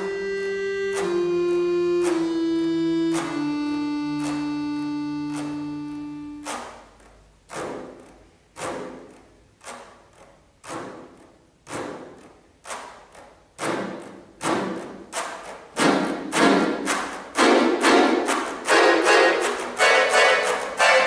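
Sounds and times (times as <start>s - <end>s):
accordion accented strokes: 0.0s - 6.7s, 15.8s - 21.0s.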